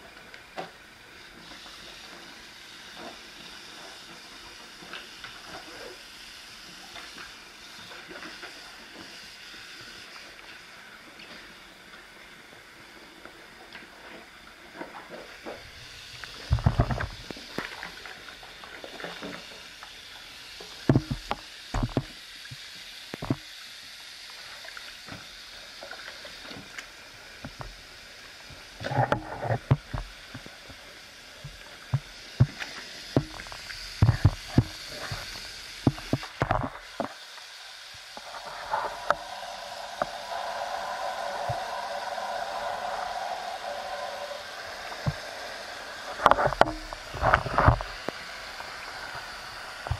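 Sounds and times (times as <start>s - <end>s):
soap foam fizzing: 28.8s - 49.9s.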